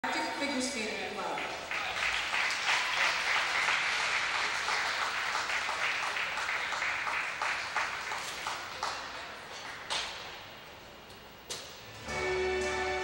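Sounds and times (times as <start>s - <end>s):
audience applauding: 1.4s - 10.0s.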